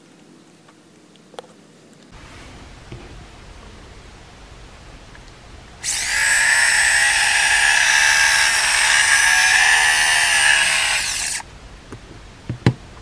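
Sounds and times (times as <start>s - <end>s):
electric shaver motor whine: 5.8s - 11.4s.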